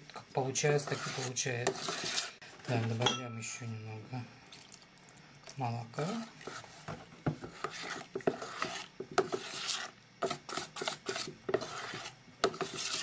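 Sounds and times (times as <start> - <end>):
metal spoon scraping steel pot: 0.8 - 2.4, 7.6 - 9.9, 10.8 - 13.0.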